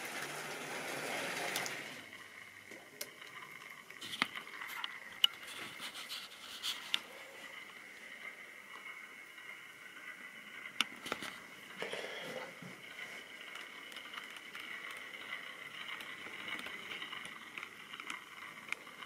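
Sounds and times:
model train motor whirring: 0.0s - 2.5s, 12.8s - 19.0s.

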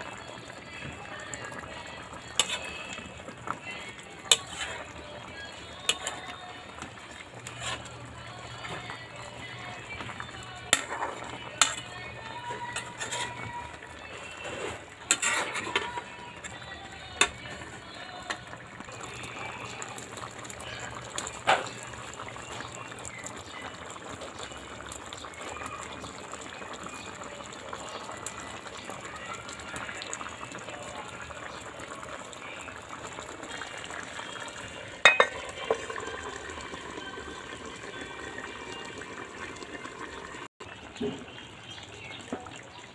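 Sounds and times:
pot bubbling and simmering: 0.0s - 42.9s.

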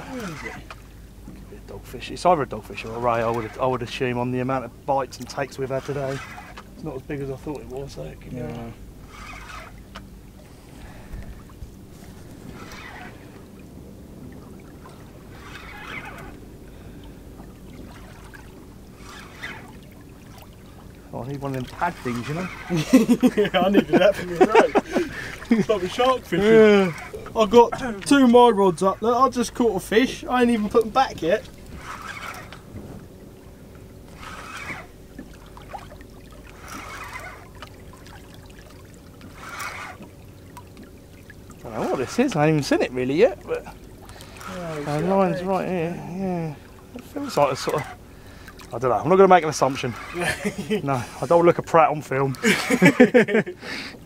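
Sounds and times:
rushes of water: 0.0s - 54.0s
water lapping against boat hull: 0.0s - 54.0s.

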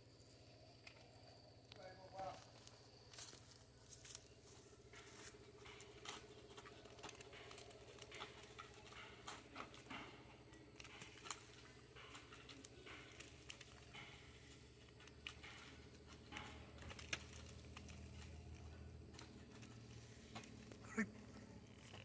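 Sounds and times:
pole clicking and scraping branch: 4.9s - 22.0s.

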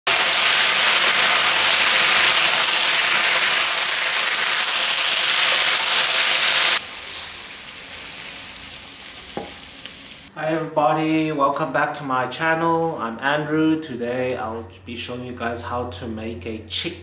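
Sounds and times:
food sizzling in a hot wok: 0.1s - 10.3s.

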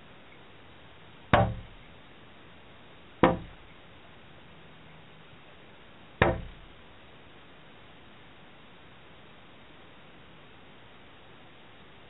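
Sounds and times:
turkey pecking on window glass: 1.4s - 1.9s, 3.2s - 3.7s, 6.2s - 6.7s.

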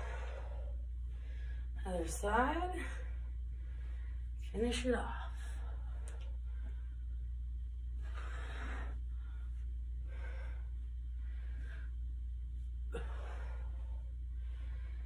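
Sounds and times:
woman breathing hard: 0.0s - 1.8s, 5.4s - 12.2s, 12.9s - 15.0s
low hum: 0.0s - 15.0s.

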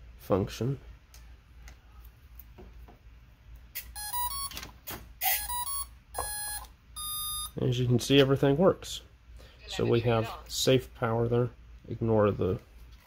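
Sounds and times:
steady electronic beep: 4.0s - 4.5s, 5.2s - 7.6s.

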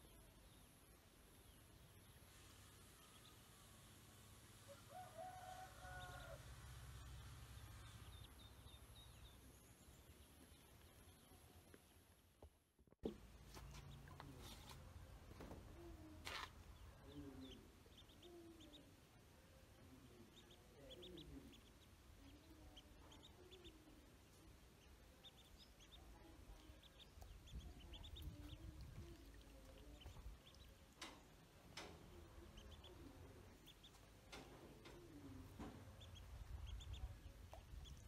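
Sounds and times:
ducklings peeping: 5.8s - 12.1s, 15.5s - 38.0s.

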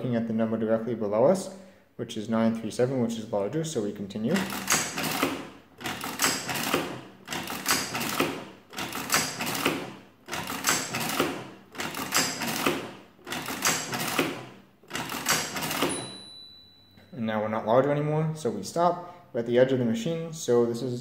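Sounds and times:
adding machine handle clattering: 4.3s - 16.3s.

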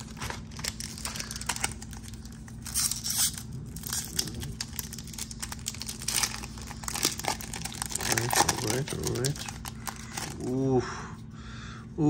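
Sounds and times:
foil wrapper tearing and crinkling: 0.0s - 10.5s.

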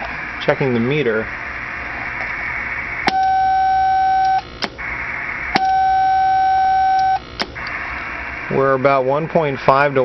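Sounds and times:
radio receiver hiss: 0.0s - 10.0s
steady transmitter beep: 3.0s - 7.4s.

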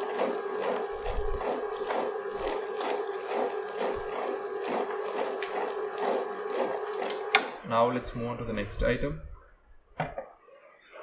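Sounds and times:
wet grinder humming and churning: 0.0s - 7.6s.

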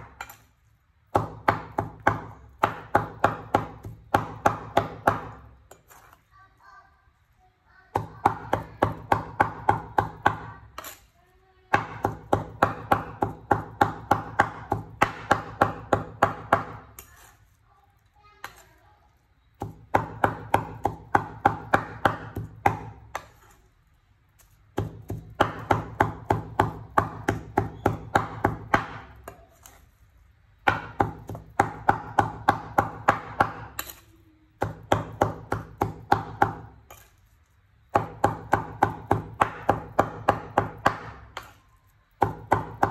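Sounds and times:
cleaver chopping meat on wooden board: 1.1s - 5.5s, 7.9s - 10.7s, 11.7s - 17.0s, 19.6s - 23.4s, 24.7s - 29.4s, 30.6s - 34.0s, 34.6s - 37.0s, 37.9s - 42.9s.

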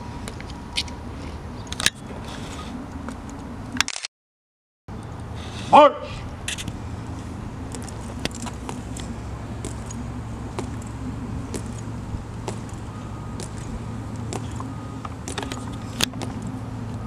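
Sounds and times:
low background rumble: 4.9s - 17.0s
marching footsteps on stone: 6.6s - 16.6s.

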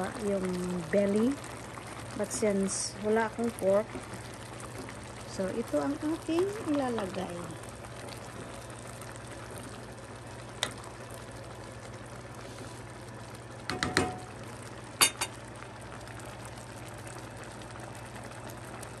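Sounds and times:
soup bubbling in a pan: 0.0s - 19.0s
spoon knocking against pan: 13.7s - 14.3s.

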